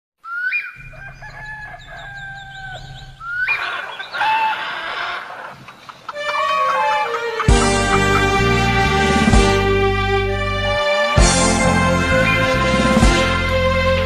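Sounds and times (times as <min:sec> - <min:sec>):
rooster crowing: 0:00.8 - 0:09.3, 0:10.4 - 0:13.2
instrumental music: 0:06.1 - 0:14.0.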